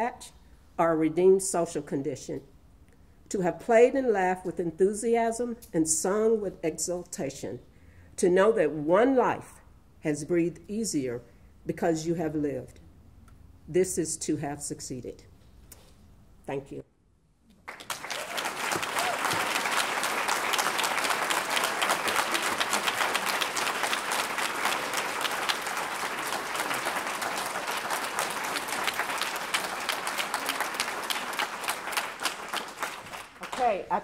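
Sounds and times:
audience applauding: 17.6s - 33.8s.

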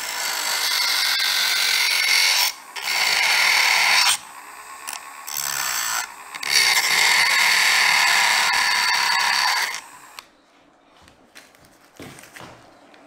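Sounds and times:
rotary tool grinding metal: 0.0s - 10.2s.

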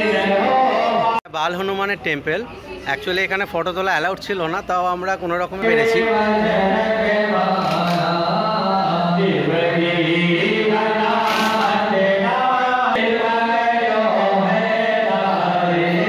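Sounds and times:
voices chanting a hymn: 0.0s - 1.2s, 5.6s - 16.0s.

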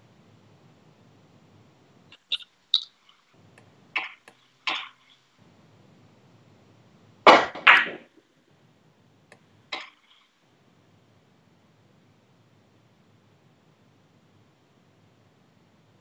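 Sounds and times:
billiard balls clicking: 7.3s - 8.2s.

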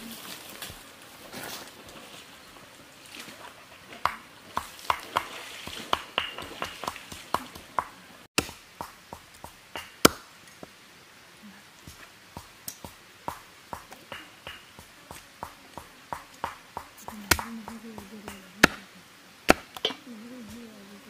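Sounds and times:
cleaver chopping on wooden block: 16.2s - 17.5s, 19.5s - 19.9s.

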